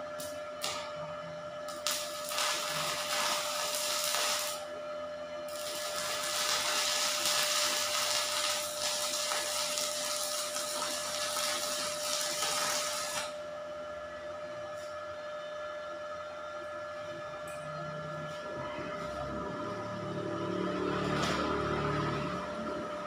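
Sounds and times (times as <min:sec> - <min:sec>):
thin steady whine: 0:00.0 - 0:23.0
welding arc crackling hiss: 0:01.7 - 0:04.7, 0:05.5 - 0:13.4.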